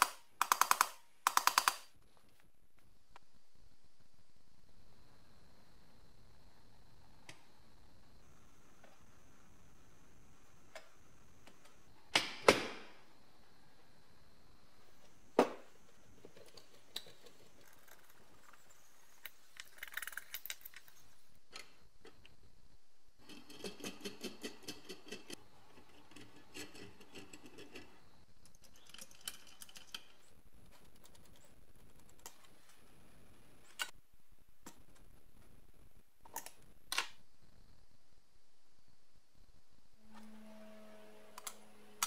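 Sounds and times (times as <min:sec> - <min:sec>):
small metal parts clicking: 0:19.2 - 0:21.6, 0:28.4 - 0:30.3.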